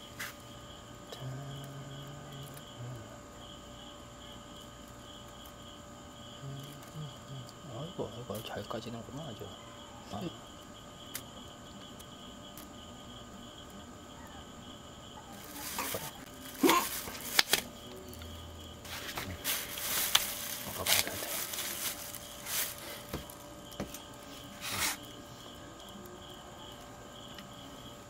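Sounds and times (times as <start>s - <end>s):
crickets chirping: 0.0s - 28.0s
plastic bag rustling: 15.3s - 18.2s, 18.8s - 25.1s.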